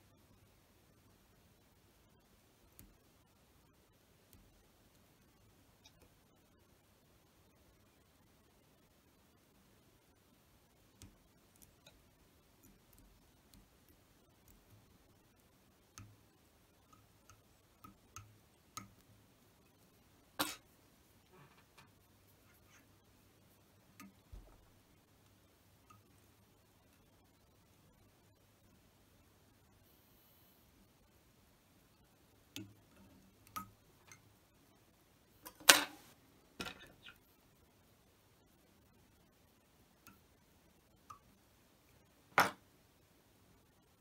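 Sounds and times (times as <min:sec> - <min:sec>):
small clicks and taps of tools: 0:12.6 - 0:19.1, 0:32.5 - 0:34.2, 0:40.0 - 0:40.3.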